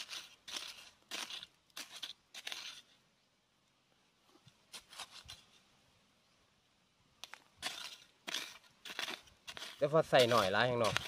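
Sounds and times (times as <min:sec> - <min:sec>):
digging tool scraping dry sand: 0:00.0 - 0:03.0, 0:04.5 - 0:05.6, 0:07.2 - 0:11.0.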